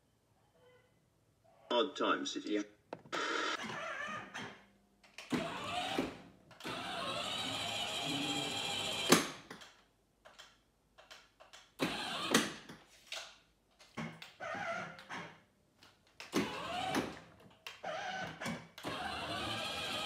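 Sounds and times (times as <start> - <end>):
toy truck motors whirring: 5.2 - 9.4, 11.8 - 12.5, 16.2 - 20.0.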